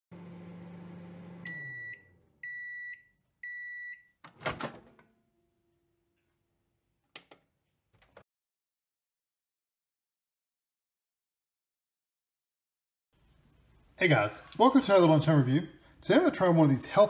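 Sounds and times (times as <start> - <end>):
microwave oven humming: 0.1 - 2.8
microwave beeps: 1.0 - 4.2.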